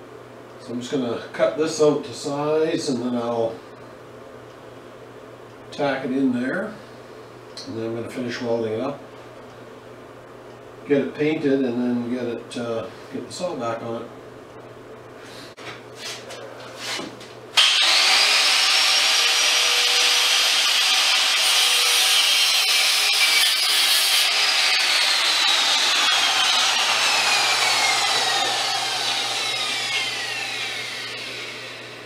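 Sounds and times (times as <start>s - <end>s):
angle grinder cutting metal: 17.6s - 32.0s.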